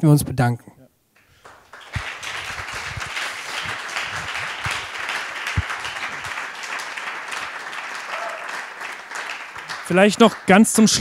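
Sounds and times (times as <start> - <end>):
audience applauding: 1.2 - 11.0
dull low thumps: 2.0 - 4.9.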